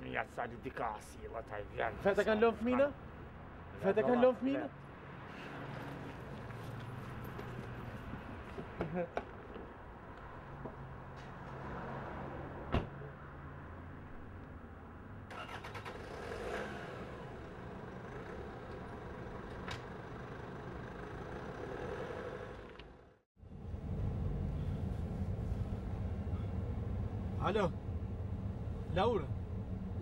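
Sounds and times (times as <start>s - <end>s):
low rumble inside car: 23.5s - 30.0s.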